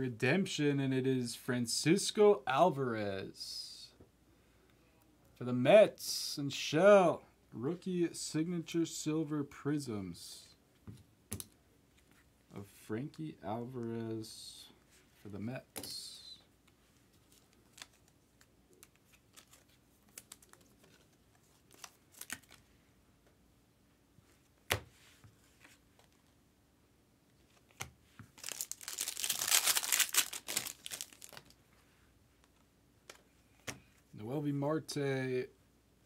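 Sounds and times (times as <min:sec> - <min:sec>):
wrapper crinkling and tearing: 0:28.3 - 0:31.6.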